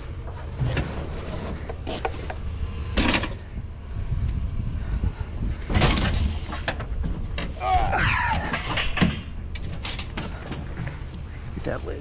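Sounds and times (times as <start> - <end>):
low rumble: 0.0 - 11.6
scrap rattling clatter: 5.5 - 11.6.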